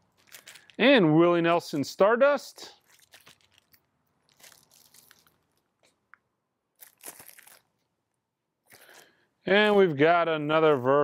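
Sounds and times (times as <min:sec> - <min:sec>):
record jacket rustling: 0:06.8 - 0:07.8.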